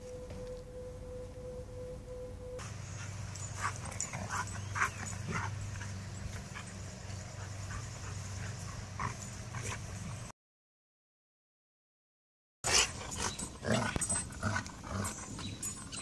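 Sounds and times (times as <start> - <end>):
steady low hum: 0.0 - 10.3
dogs yipping and whimpering: 2.6 - 10.3, 12.7 - 16.0.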